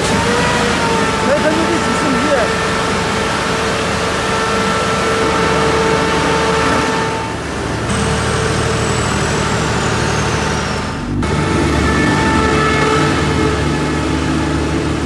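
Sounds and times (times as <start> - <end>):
steady whine: 0.0 - 15.0
truck engine running: 0.0 - 15.0.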